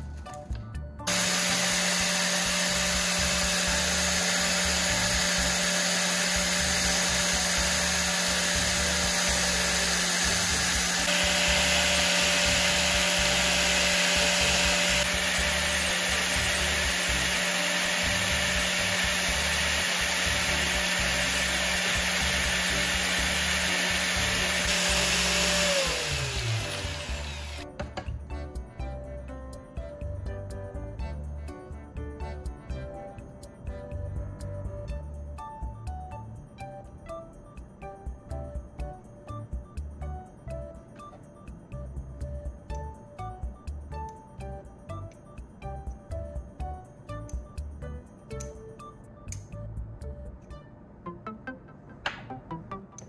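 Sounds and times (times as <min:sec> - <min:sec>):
angle grinder running: 0:01.1 - 0:27.6
drill bit grinding on disc: 0:01.1 - 0:27.6
motor winding down: 0:01.1 - 0:27.7.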